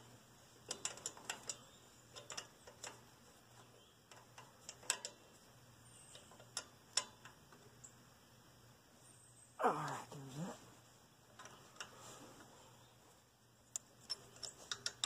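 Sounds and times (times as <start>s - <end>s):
wrench clicking on a nut: 0.7s - 3.0s, 4.1s - 5.2s, 6.1s - 7.4s, 13.7s - 15.0s.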